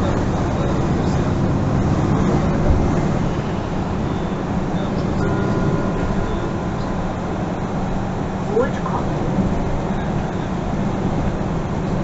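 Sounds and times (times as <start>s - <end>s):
bus engine rumble: 0.0s - 12.0s
faint high whine: 2.3s - 10.7s.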